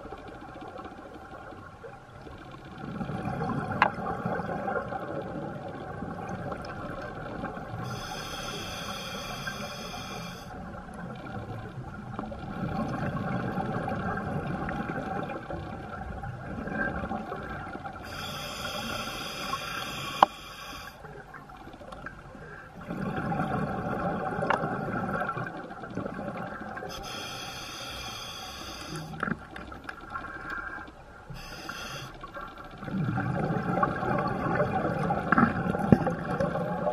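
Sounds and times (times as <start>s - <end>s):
regulator hissing inhale: 7.8s - 10.6s, 18.0s - 21.1s, 26.9s - 29.2s, 30.2s - 32.4s
exhaled bubbles burbling: 11.2s - 17.8s, 22.8s - 26.9s, 32.8s - 36.9s.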